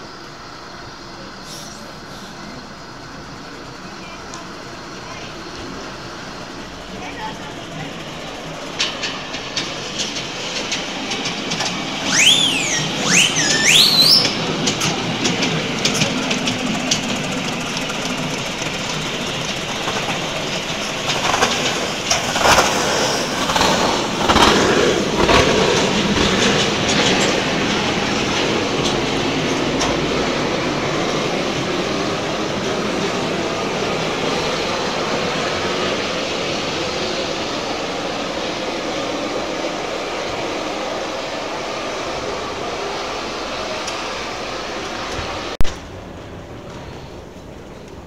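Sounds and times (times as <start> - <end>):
steam engine clanking: 1.3 - 40.7
high-pitched swooping sounds: 12.0 - 14.5.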